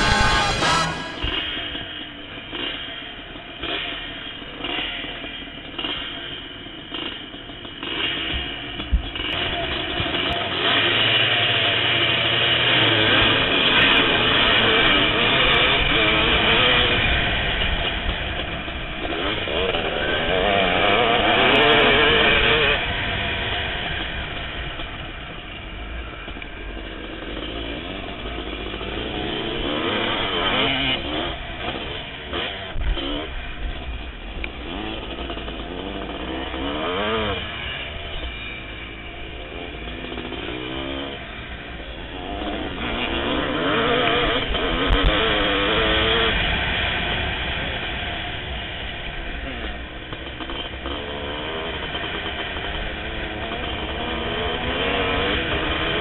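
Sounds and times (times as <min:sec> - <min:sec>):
pack of motocross bikes: 0:00.0 - 0:02.7
motocross bike revving: 0:00.0 - 0:56.0.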